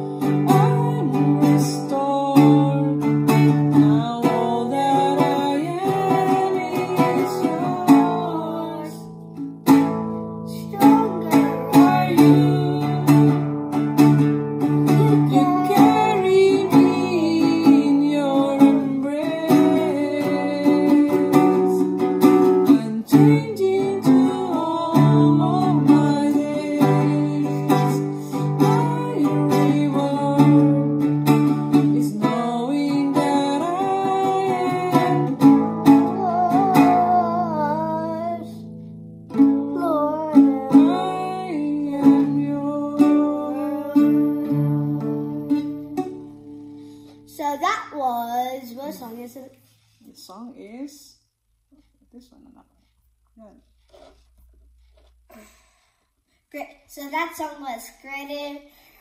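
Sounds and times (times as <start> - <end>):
child singing: 0.0 - 9.1, 10.5 - 13.4, 14.9 - 21.8, 22.8 - 30.8, 31.8 - 38.6, 39.4 - 46.0
woman singing: 0.0 - 9.2, 10.5 - 13.6, 14.9 - 38.7, 39.4 - 46.3
classical guitar strummed: 0.0 - 47.7.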